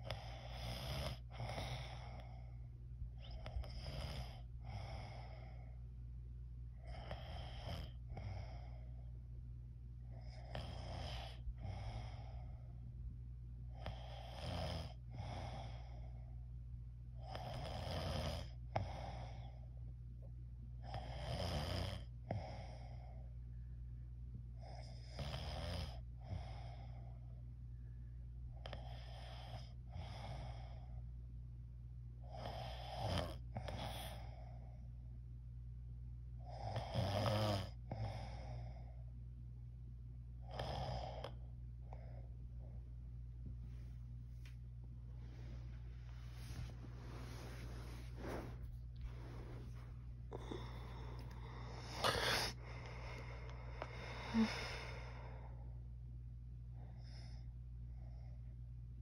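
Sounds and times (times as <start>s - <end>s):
steady low hum: 0.0s - 59.0s
person snoring: 46.3s - 55.5s.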